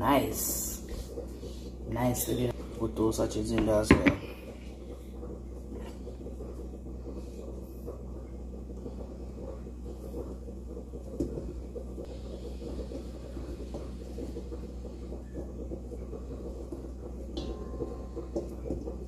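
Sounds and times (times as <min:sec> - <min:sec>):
low kitchen hum: 0:00.0 - 0:19.0.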